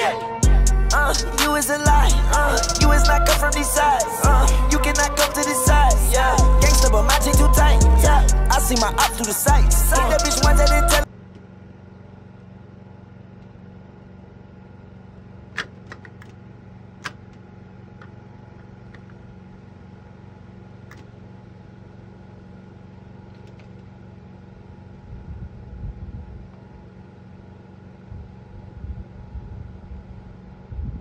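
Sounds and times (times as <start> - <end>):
low rumbling: 0.0 - 11.1, 24.5 - 26.9, 28.0 - 31.0
vending machine humming: 0.0 - 31.0.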